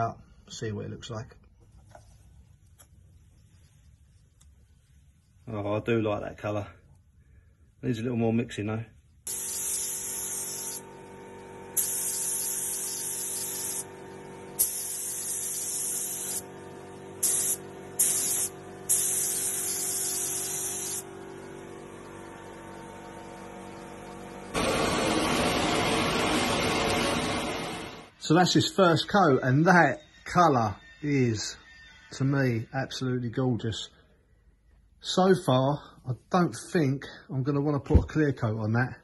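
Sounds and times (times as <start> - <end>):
steady machine hum: 9.2 - 28.1
paint spray gun hissing: 9.3 - 11.1, 11.7 - 21.1.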